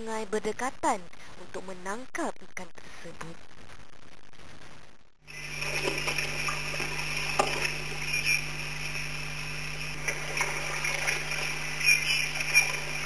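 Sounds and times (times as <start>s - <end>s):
small water splashes: 5.4s - 7.9s, 10.0s - 13.0s.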